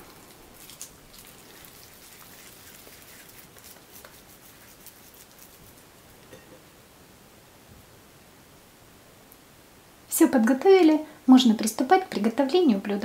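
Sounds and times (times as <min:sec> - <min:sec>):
hands shaping minced meat: 0:00.0 - 0:06.3.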